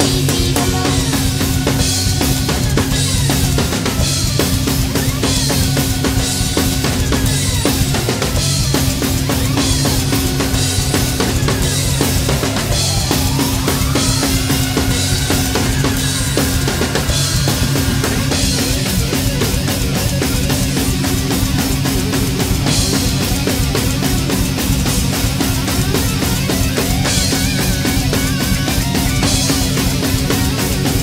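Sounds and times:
bass drum strokes: 0.0 - 5.8
heavy metal backing track: 0.0 - 31.0.

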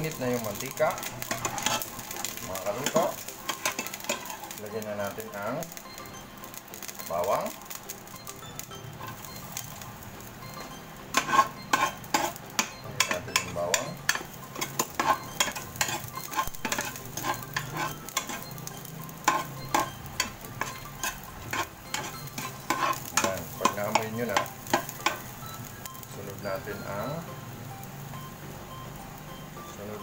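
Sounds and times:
garlic sizzling in hot oil: 0.0 - 30.0
spatula scraping a pan: 0.2 - 4.9, 10.6 - 25.3.

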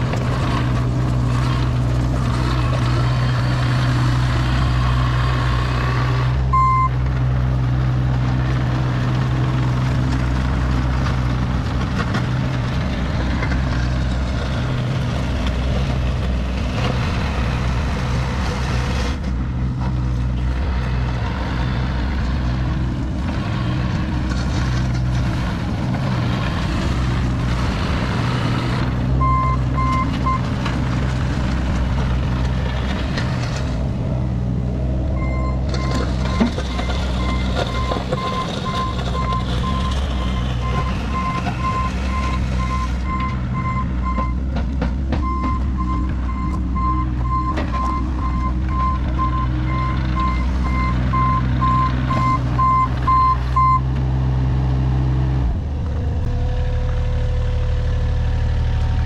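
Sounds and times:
diesel engine running: 0.0 - 59.0
clicks from gravel and tracks: 35.6 - 43.4.

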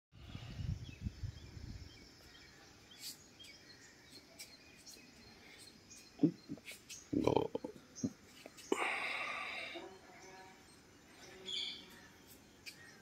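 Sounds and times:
rural outdoor ambience: 0.1 - 13.0
low rumble on microphone: 0.2 - 2.0
high bird chirps: 1.0 - 13.0.

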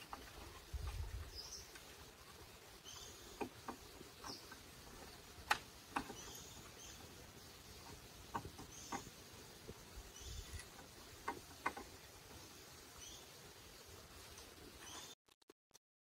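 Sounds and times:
bamboo knocking: 5.4 - 6.3, 7.8 - 9.1, 10.8 - 12.0.

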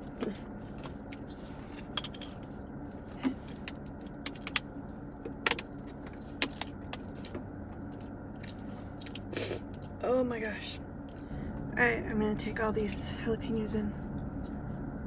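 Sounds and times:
chewing: 0.0 - 10.0
steady low hum: 0.0 - 15.0.

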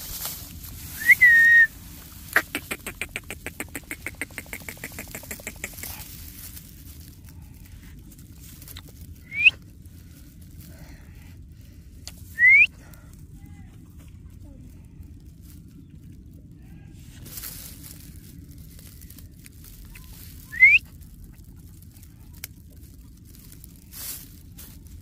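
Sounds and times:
parakeet rattling call: 2.3 - 6.0.

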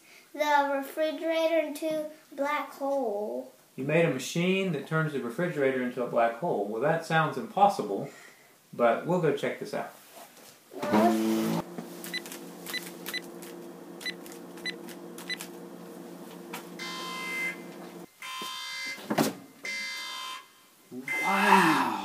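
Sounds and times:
harsh electric buzz: 10.8 - 18.1
low electronic hum: 11.4 - 18.1.

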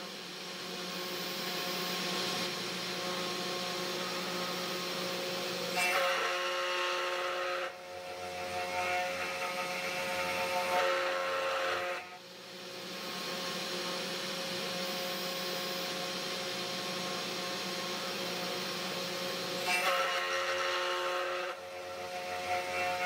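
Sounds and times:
router spindle whine: 0.0 - 23.0
end mill cutting plastic: 1.0 - 12.2, 15.9 - 23.0.

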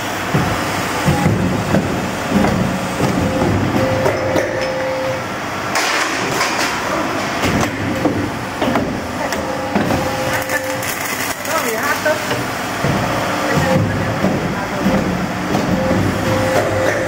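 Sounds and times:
machine knocks: 0.2 - 5.0, 7.4 - 10.8, 12.2 - 17.0
machine mechanical clatter: 5.7 - 17.0.

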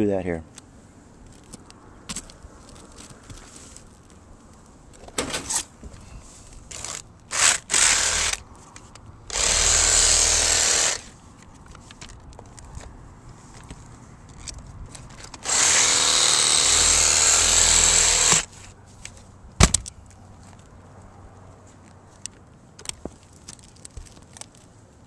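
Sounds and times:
reciprocating saw cutting nails: 6.7 - 8.4, 9.3 - 11.1, 15.4 - 18.5.

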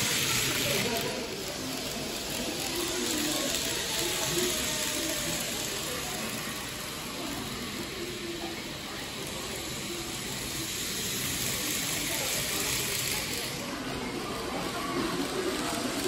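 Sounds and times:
model trains whirring on track: 0.0 - 16.0.

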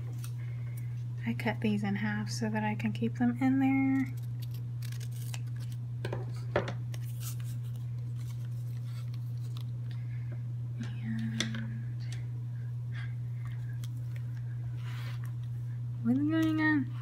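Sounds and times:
steady low hum: 0.0 - 17.0
paper handling: 4.1 - 5.8, 6.9 - 10.0.

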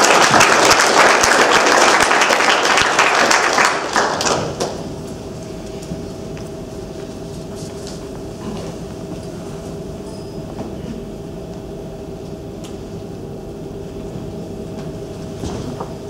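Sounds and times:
audience applauding: 0.0 - 5.0
steady hum with faint drone: 2.9 - 16.0.

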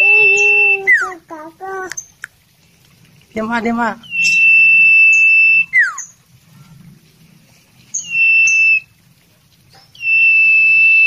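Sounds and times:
bird singing high whistles: 0.0 - 1.1, 4.0 - 6.2, 7.9 - 8.9, 9.8 - 11.0.

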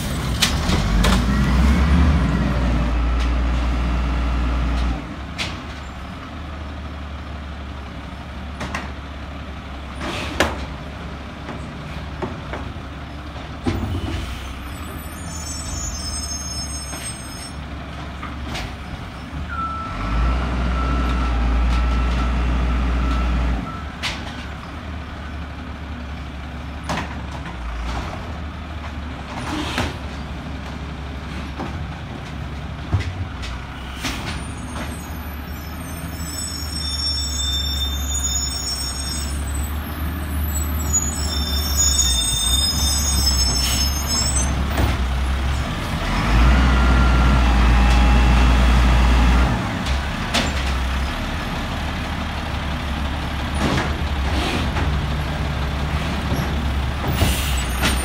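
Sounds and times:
garbage truck diesel engine: 0.0 - 58.0
air brake hisses: 57.2 - 58.0.

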